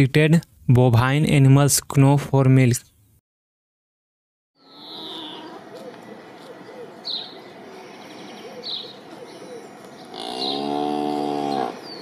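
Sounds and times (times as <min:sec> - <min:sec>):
cow mooing: 0:04.6 - 0:05.7, 0:09.4 - 0:12.0
birds chirping: 0:04.6 - 0:12.0.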